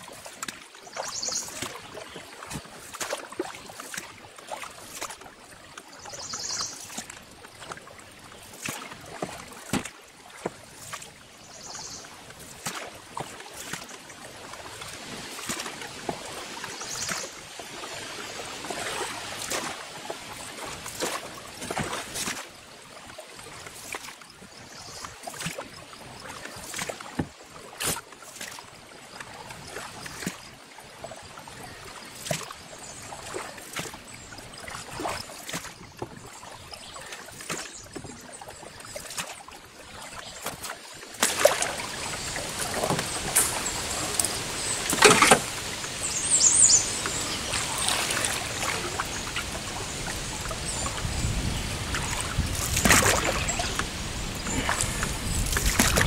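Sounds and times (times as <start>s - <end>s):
paddle strokes in water: 0.0s - 56.0s
steady rushing water: 0.0s - 56.0s
paddle knocking: 42.4s - 45.6s.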